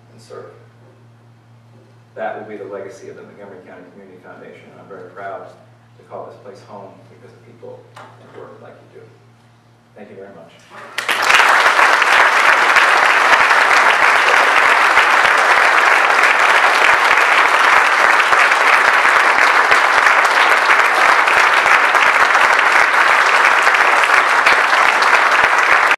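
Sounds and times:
audience applauding: 10.8 - 25.9.

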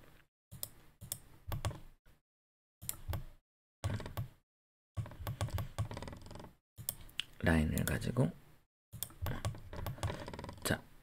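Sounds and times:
computer mouse clicking: 0.6 - 1.8, 5.0 - 8.0, 9.0 - 10.4.

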